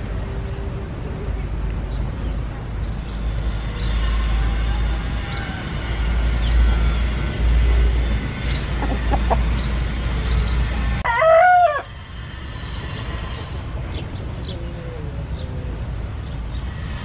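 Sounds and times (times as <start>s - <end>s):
rooster crowing: 11.0s - 12.0s.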